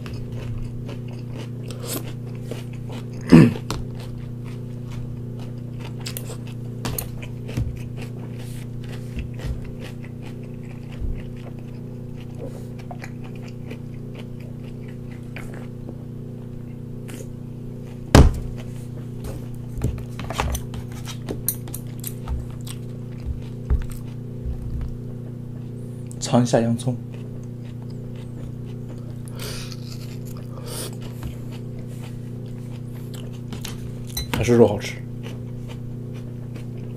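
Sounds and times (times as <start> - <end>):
chewing: 0.0 - 26.2, 27.0 - 34.2, 35.2 - 36.9
steady low hum: 0.0 - 36.9.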